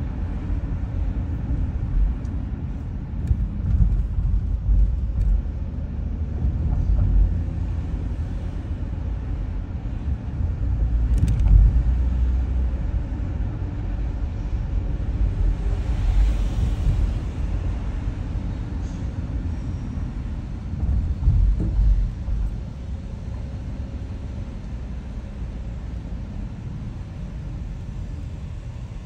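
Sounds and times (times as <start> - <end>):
car road and engine rumble: 0.0 - 29.0.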